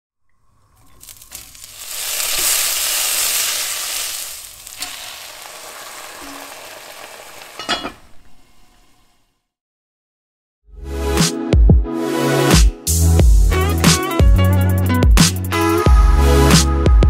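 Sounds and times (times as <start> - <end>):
sauce poured sizzling: 0.7 - 8.2
onions sizzling in hot oil: 1.0 - 8.8.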